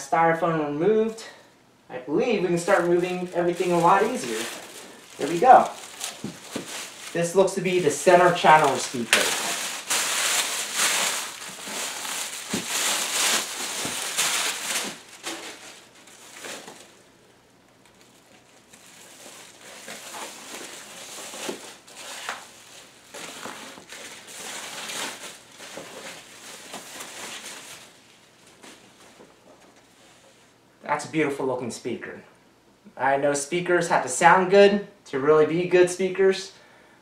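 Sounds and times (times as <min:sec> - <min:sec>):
plastic wrapping crinkling: 0:02.2 - 0:30.5.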